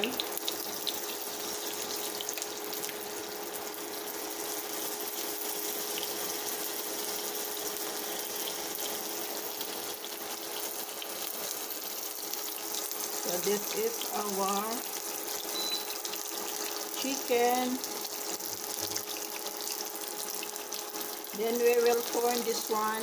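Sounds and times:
chicken sizzling in hot oil: 0:00.0 - 0:23.0.

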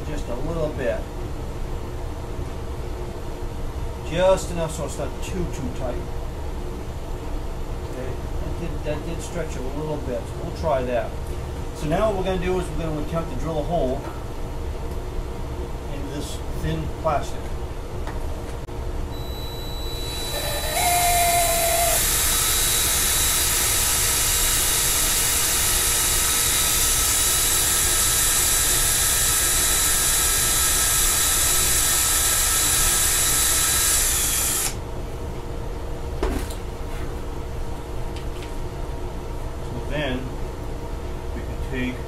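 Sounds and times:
cordless drill whining: 0:19.2 - 0:34.8.

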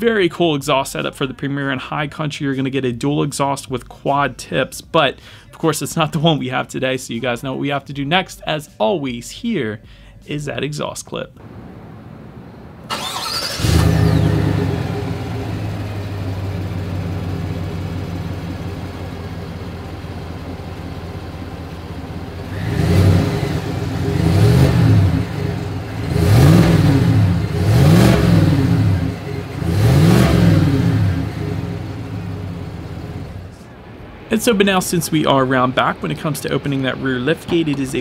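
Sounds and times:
engine idling: 0:11.4 - 0:33.7
engine cranking and starting: 0:12.8 - 0:33.6
engine revving: 0:12.8 - 0:34.6.

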